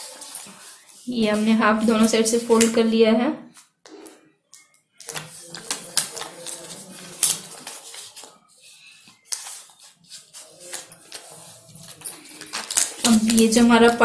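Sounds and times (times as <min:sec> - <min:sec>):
stiff paper rustling and creasing: 0:05.0 - 0:13.6.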